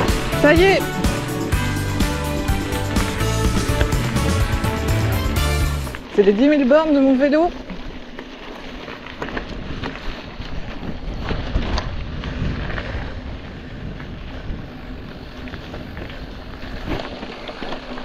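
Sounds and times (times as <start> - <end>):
wind buffeting microphone: 9.3 - 17.4.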